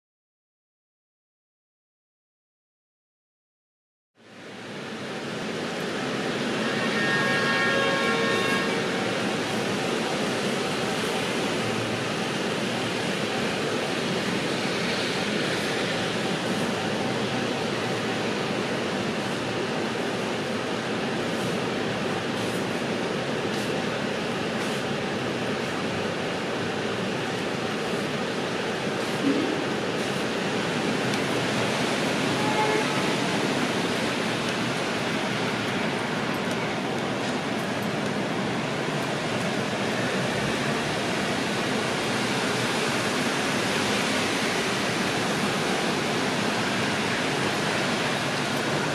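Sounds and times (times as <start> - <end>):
city traffic rumble and hiss: 4.2 - 48.9
brief chord-like tone: 29.2 - 29.9.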